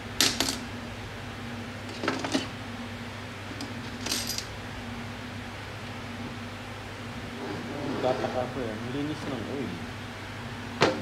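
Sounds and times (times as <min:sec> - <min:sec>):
steady low hum: 0:00.0 - 0:11.0
metal tools clinking on workbench: 0:04.0 - 0:04.5.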